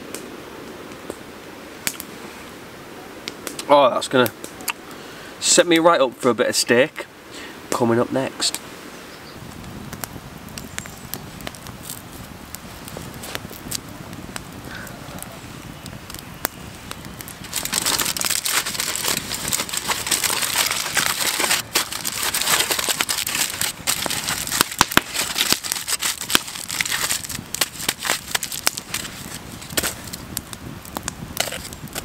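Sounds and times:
campfire crackling: 0.0s - 32.0s
aluminium foil crumpling: 17.3s - 30.2s, 31.4s - 32.0s.

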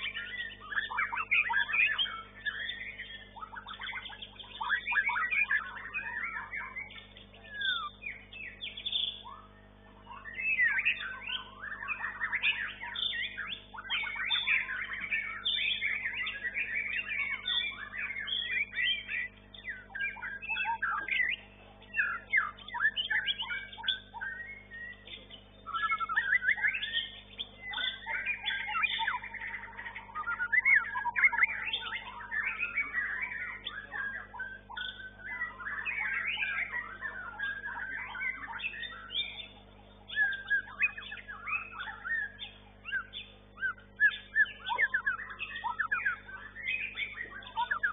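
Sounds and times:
bird singing whistles and chatter: 0.0s - 47.9s
faint steady hum: 0.0s - 47.9s.

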